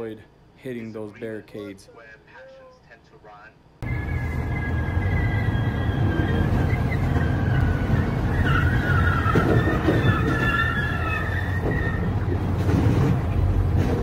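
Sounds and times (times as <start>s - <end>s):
high wavering squeal: 3.8s - 12.3s
semi truck rumble: 3.8s - 14.0s
slow traffic: 3.8s - 14.0s.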